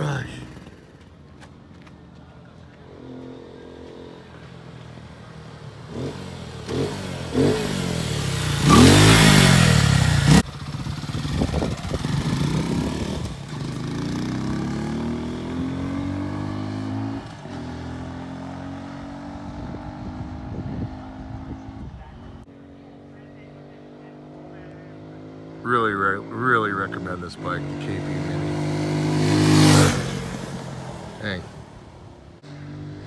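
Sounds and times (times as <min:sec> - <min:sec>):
motorcycle engine revving: 0:02.8 - 0:33.0.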